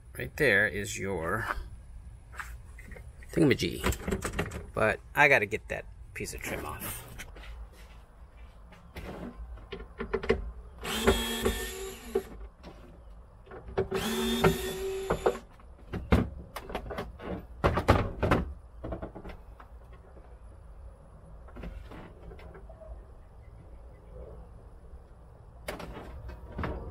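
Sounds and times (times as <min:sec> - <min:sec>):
cordless drill spinning: 0:10.8 - 0:12.3, 0:13.9 - 0:15.4.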